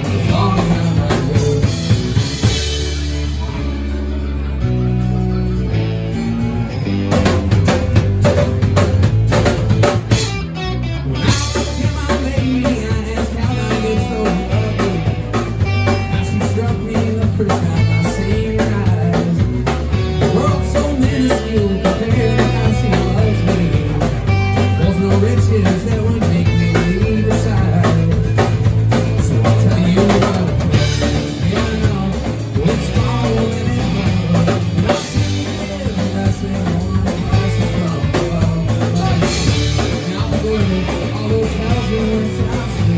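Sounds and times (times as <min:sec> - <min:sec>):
drum kit: 0:00.0 - 0:42.9
electric bass: 0:00.0 - 0:42.9
electric guitar: 0:00.0 - 0:42.9.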